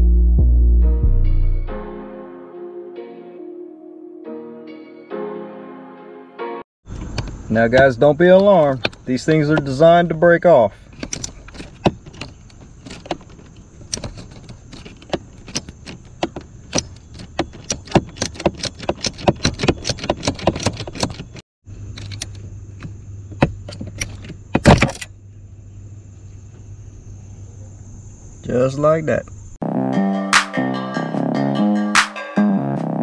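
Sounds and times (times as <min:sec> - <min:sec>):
bolt head snapping off: 0:22.0 - 0:25.1.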